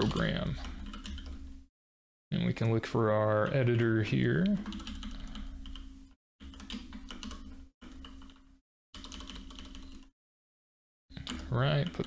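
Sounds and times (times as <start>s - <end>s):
keyboard typing: 0.0s - 1.4s, 4.4s - 10.1s, 11.2s - 12.0s.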